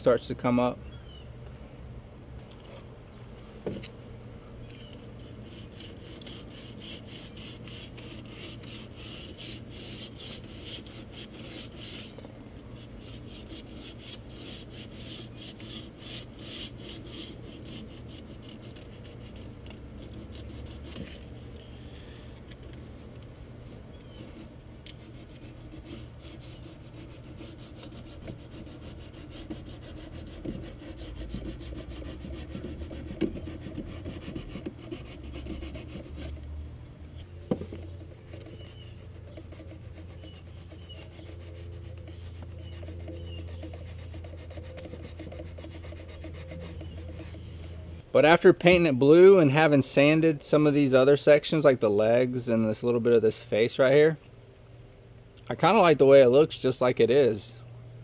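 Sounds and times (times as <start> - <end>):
sandpaper rubbing on wood: 5.0 - 21.2, 24.2 - 36.4, 38.2 - 47.5.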